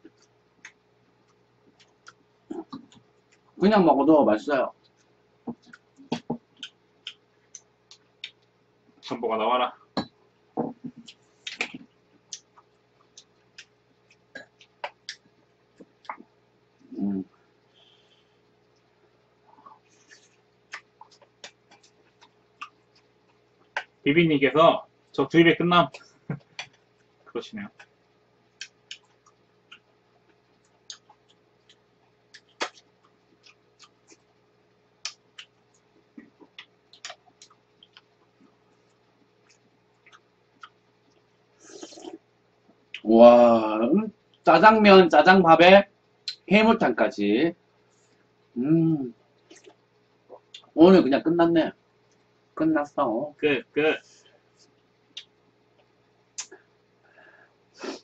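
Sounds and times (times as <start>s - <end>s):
mouth noises eating: 0.0s - 3.6s, 10.0s - 23.9s, 25.8s - 34.4s, 35.0s - 43.7s, 46.2s - 46.5s, 48.5s - 50.8s, 53.6s - 56.8s, 57.8s - 58.0s
chewing: 19.5s - 23.8s, 28.6s - 34.4s, 35.0s - 43.0s, 49.4s - 50.7s.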